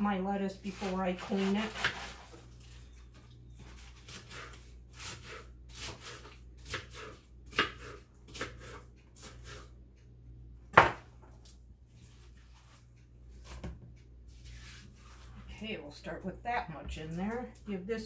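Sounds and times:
knife chopping lettuce on board: 0.7s - 2.4s, 3.7s - 9.7s.

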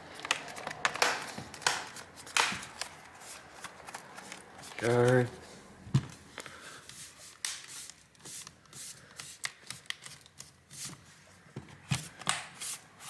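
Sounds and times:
plastic clips snapping into place: 0.2s - 2.9s.

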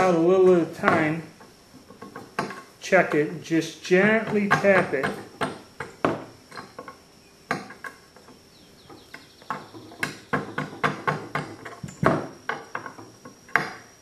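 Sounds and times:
mallet tapping steel punch: 4.0s - 6.8s.

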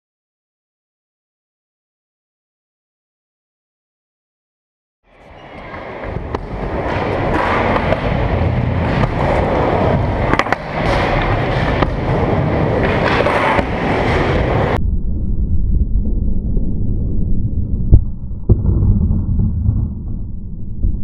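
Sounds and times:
skateboard clacks: 5.2s - 14.8s
skateboard wheels rolling on ramp: 5.2s - 14.8s.

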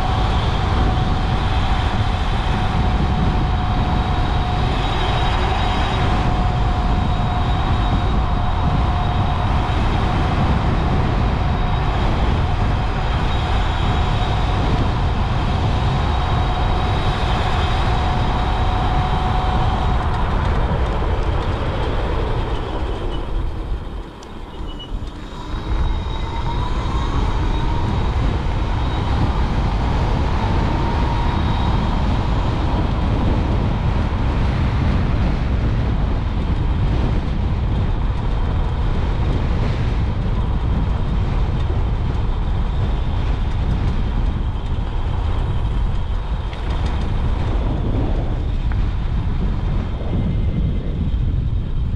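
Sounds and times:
electric motor whine: 0.0s - 35.6s
wind buffeting microphone: 0.0s - 51.9s.

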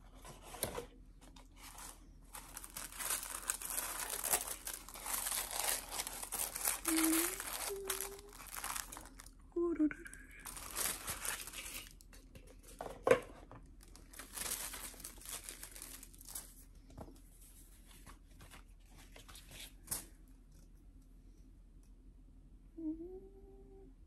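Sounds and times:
box and card rustling: 0.1s - 9.3s, 10.5s - 16.6s.

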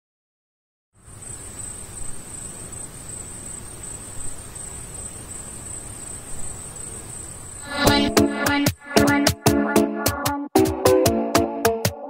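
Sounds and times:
even hiss: 1.0s - 9.2s.

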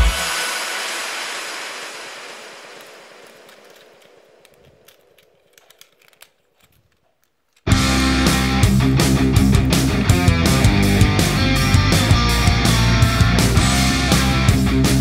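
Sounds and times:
plastic toy parts clicking: 3.4s - 7.7s
background music: 7.7s - 15.0s.

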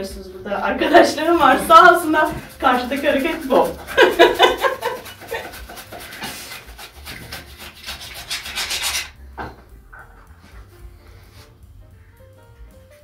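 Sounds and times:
knife slicing potatoes: 1.4s - 9.2s.

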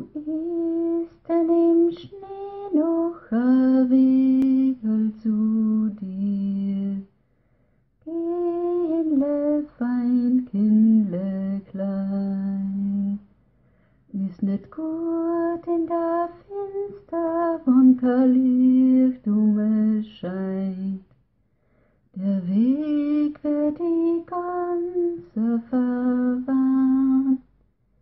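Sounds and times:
person singing unaccompanied: 0.0s - 7.1s, 8.0s - 13.3s, 14.1s - 21.1s, 22.2s - 27.5s.

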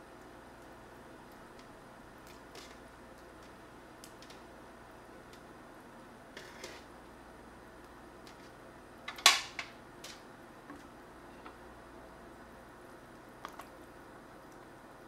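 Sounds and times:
food scraped off metal tray: 6.4s - 6.9s.

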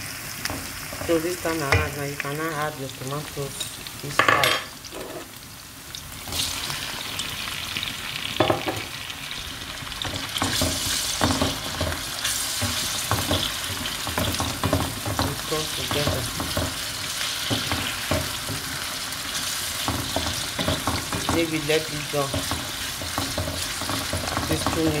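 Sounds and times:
vegetables sizzling in oil: 0.0s - 25.0s
wooden spoon scraping a pan: 4.9s - 5.3s, 10.1s - 25.0s.

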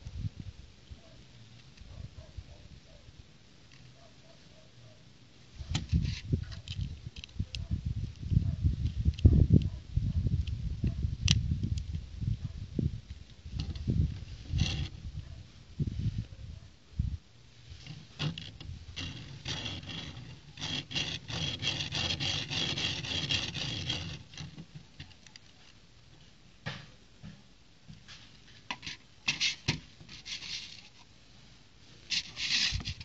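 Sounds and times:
plastic toy car rattling on table: 17.9s - 25.4s.

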